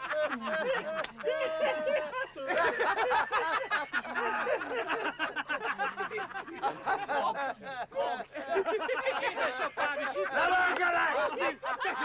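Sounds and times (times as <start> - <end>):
men laughing: 0.0 - 12.0.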